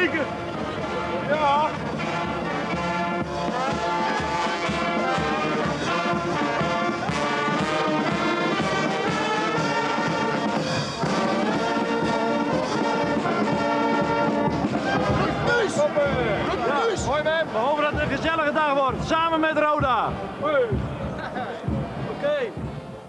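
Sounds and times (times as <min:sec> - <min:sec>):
street brass band playing: 0:00.0 - 0:23.0.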